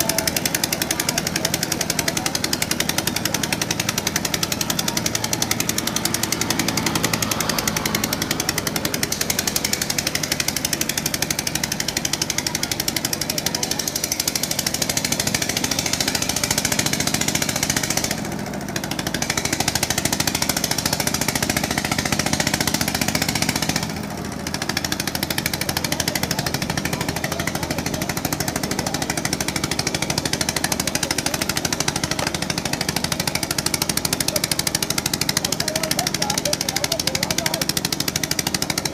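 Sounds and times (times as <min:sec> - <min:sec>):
boat engine running: 0:00.0 - 0:38.9.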